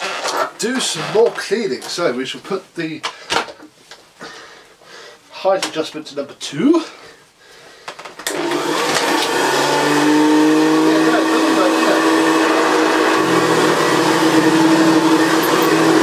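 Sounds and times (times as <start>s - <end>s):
vacuum cleaner motor whine: 8.2s - 16.0s
vacuum brush on rug: 8.3s - 16.0s.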